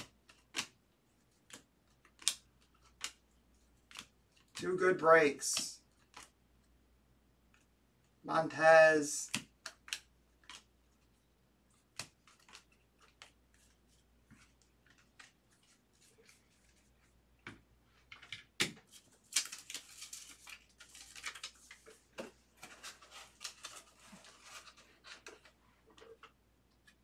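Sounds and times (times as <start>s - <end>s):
cards clicking and tapping: 0.0s - 4.6s, 5.4s - 6.4s, 9.2s - 16.1s, 17.4s - 23.9s
cards rustling: 0.0s - 6.7s, 7.5s - 17.2s, 18.0s - 27.0s.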